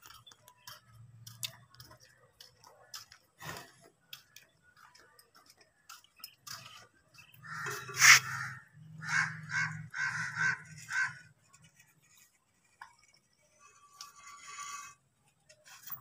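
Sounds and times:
harsh animal calls: 7.4 - 11.3.

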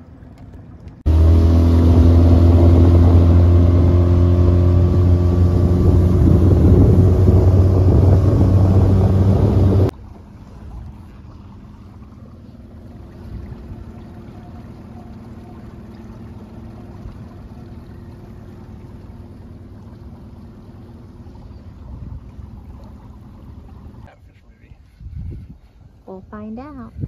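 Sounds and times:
outboard motor droning: 0.0 - 27.0
wind buffeting microphone: 0.6 - 9.9, 21.4 - 27.0.

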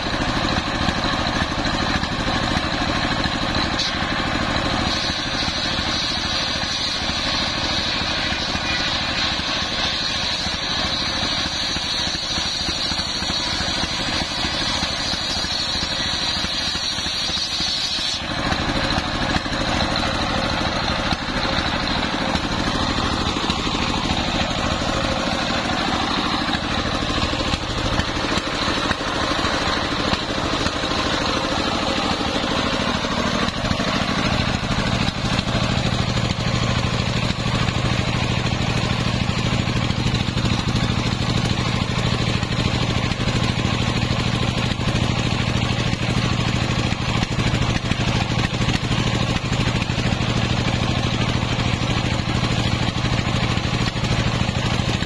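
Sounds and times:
circular saw cutting timber: 0.0 - 55.0
diesel engine running: 0.0 - 55.0.

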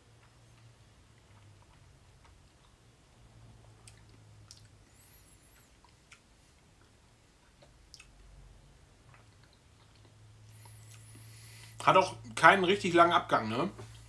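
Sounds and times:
low steady hum: 0.0 - 14.0
lip and tongue clicks: 3.8 - 4.8, 5.5 - 8.2.

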